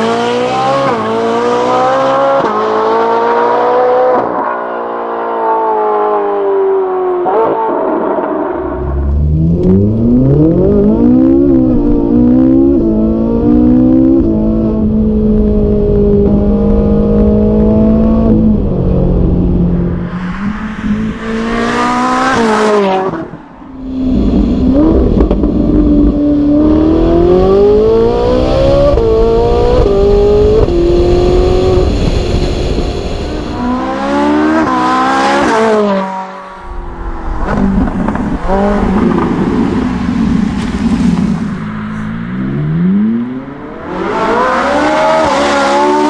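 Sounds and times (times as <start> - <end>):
car passing close: 18.9 - 25.6, 31.4 - 46.0.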